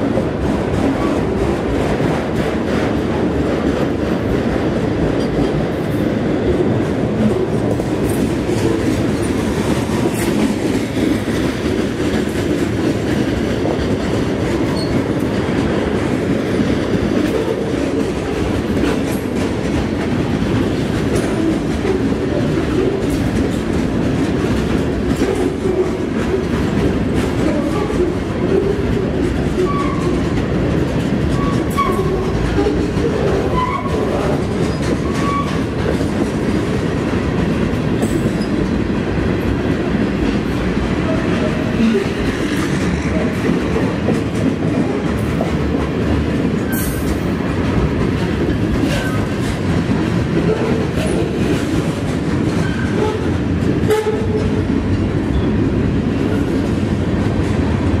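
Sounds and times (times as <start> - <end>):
train wheels rumbling on rail: 0.0 - 58.0
wheels clacking over rail joints: 0.0 - 58.0.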